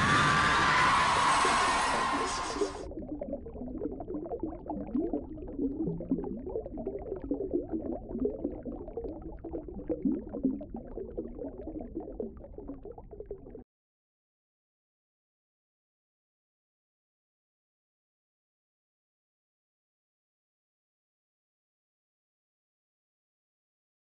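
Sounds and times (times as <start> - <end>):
underwater bubbling and gurgling: 1.5 - 13.6.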